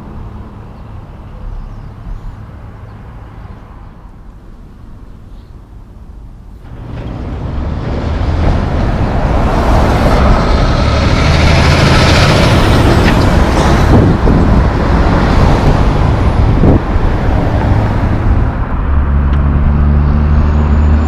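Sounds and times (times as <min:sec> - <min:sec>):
diesel truck engine passing: 0:06.6 - 0:21.0.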